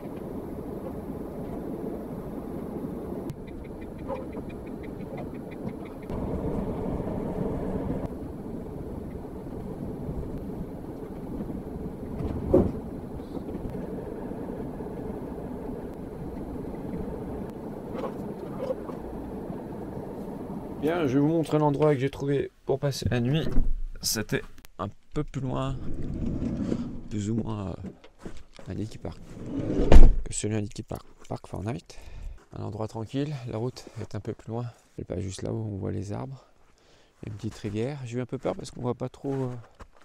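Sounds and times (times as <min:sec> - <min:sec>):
vehicle engine and tyre rumble: 0:00.0 - 0:21.5.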